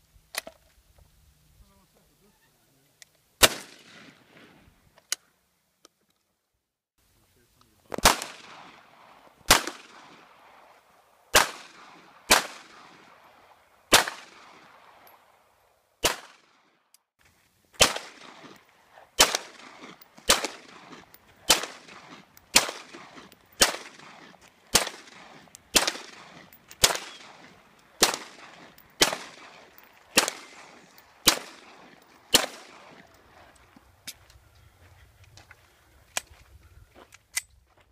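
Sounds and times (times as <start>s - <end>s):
handgun shots echoing: 3.4s - 4.4s, 7.9s - 10.6s, 11.3s - 13.3s, 13.9s - 15.2s, 16.0s - 16.6s, 17.8s - 18.6s, 19.2s - 33.3s.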